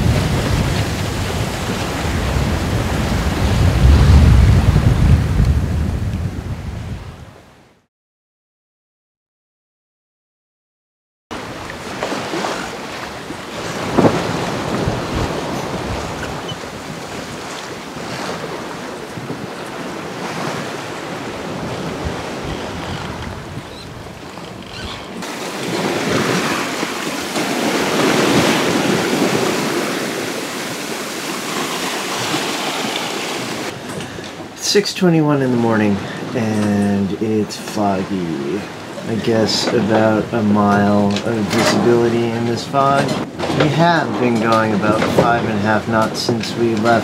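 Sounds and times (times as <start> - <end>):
wind buffeting microphone: 0.0 - 7.4, 12.0 - 31.6
sea rushing along hull: 0.0 - 7.8, 11.3 - 47.0.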